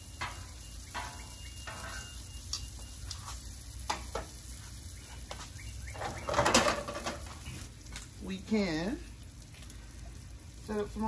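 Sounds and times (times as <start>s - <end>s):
food sizzling on a griddle: 0.0s - 11.0s
metal tongs scraping griddle: 0.2s - 2.4s.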